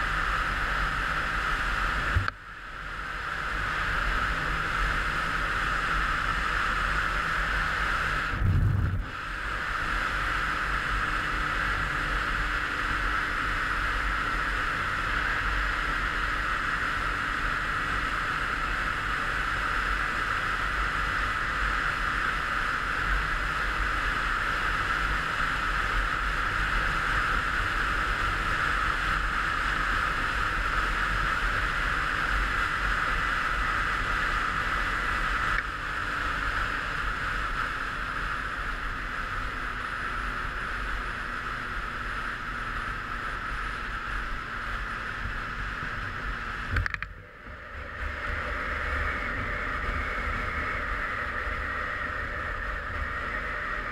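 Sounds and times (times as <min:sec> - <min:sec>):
motorcycle engine drone: 0:00.0 - 0:53.9
wind rush: 0:07.7 - 0:12.2.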